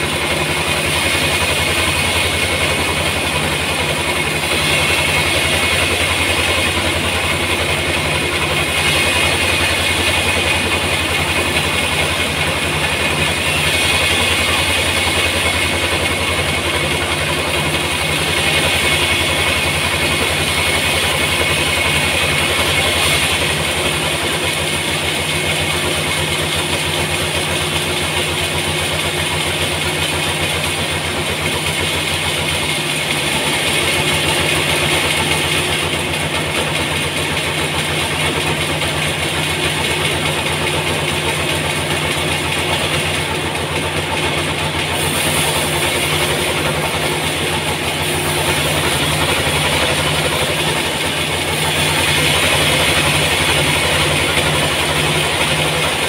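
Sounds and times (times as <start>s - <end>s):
band saw machine hum: 0.0s - 56.0s
saw blade hissing in wood: 44.8s - 50.6s.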